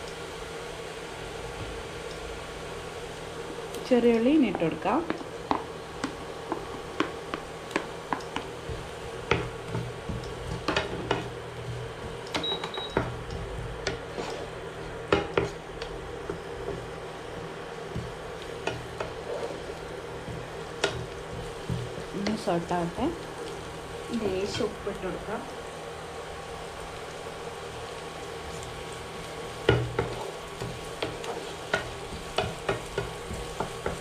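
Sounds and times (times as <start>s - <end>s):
faint sizzle: 0.0s - 34.0s
steady hum: 0.0s - 34.0s
spatula scraping frying pan: 13.5s - 15.6s, 18.4s - 22.2s, 29.6s - 34.0s.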